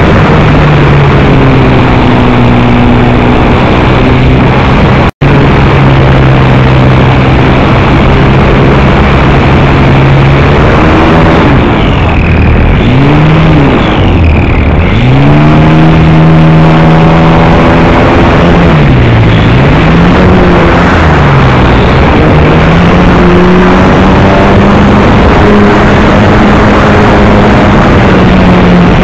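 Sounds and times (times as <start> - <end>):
wind rushing: 0.0 - 29.0.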